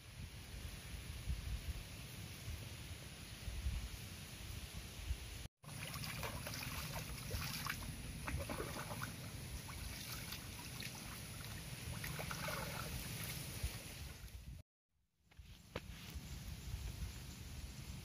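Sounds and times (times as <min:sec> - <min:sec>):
water splashing and trickling: 0:05.6 - 0:14.6.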